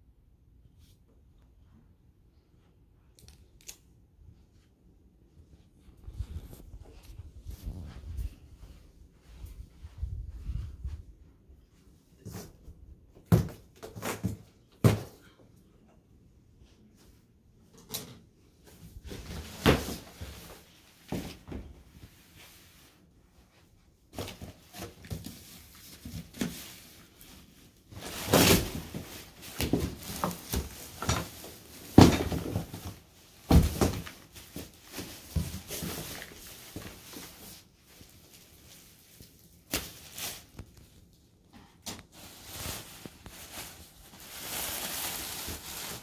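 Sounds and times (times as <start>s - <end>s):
plastic wrap rustling: 24.2s - 46.0s.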